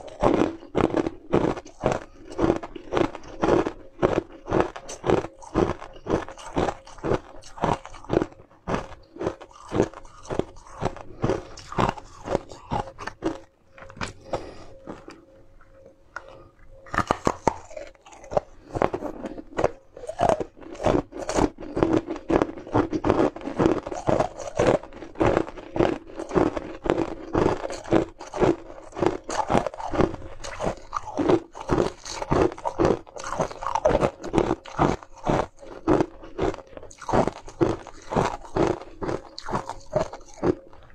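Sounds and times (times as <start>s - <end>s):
crunching ice treats: 0.0s - 40.9s.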